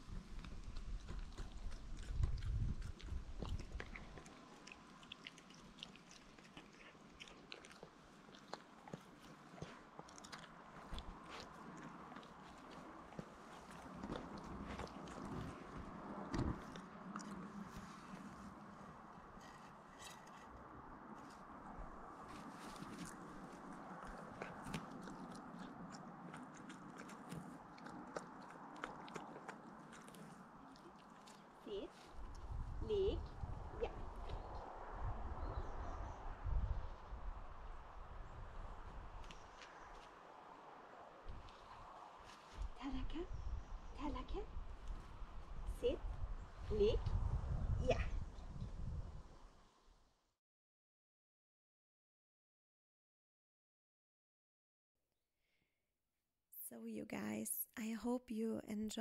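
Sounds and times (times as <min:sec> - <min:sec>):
puppy chewing and biting: 0:00.0 - 0:20.6, 0:21.2 - 0:32.6.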